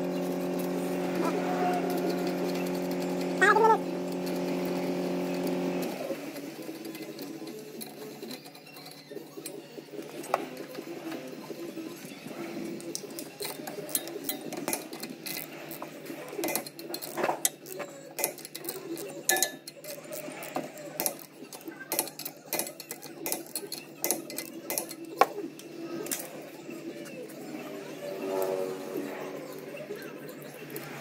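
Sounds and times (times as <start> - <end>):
hand ratchet clicking: 12.9 - 26.3
metal clinks of sockets and nuts: 16.4 - 26.2.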